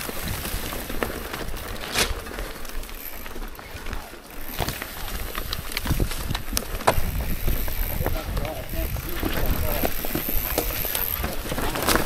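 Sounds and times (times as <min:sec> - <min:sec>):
bike rattling over bumps: 0:00.0 - 0:12.0
bike tyres rolling over dirt and rocks: 0:00.0 - 0:12.0.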